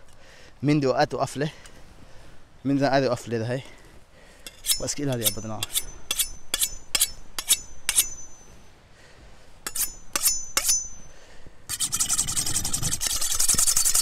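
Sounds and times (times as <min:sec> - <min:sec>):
knife scraping on metal blade: 0:04.5 - 0:08.5, 0:09.6 - 0:11.0, 0:11.7 - 0:14.0
fast rasping rub: 0:11.7 - 0:14.0.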